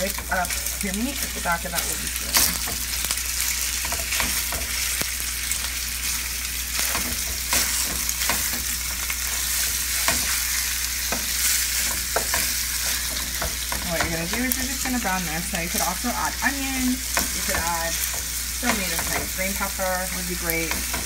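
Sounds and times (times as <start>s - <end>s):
meat sizzling in oil: 0.0s - 21.0s
wooden spoon tapping and scraping: 11.0s - 14.7s, 17.1s - 19.4s.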